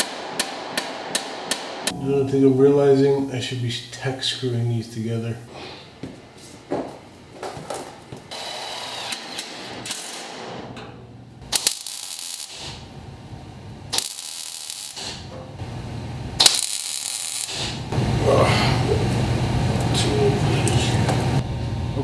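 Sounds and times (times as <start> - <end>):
welding arc crackling: 8.3 - 10.6, 11.4 - 21.4.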